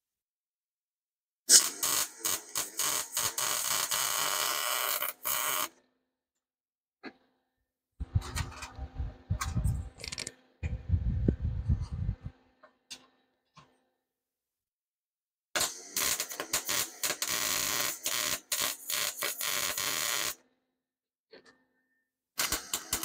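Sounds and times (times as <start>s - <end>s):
welding arc crackling: 1.5s - 5.6s, 9.6s - 10.3s, 15.6s - 20.4s, 22.4s - 23.0s.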